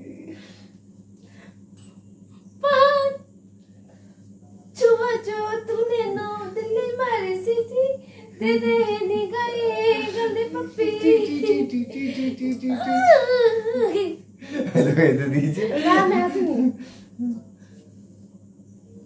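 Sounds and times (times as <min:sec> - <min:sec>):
woman vocalising sing-song: 0:04.8 - 0:14.2.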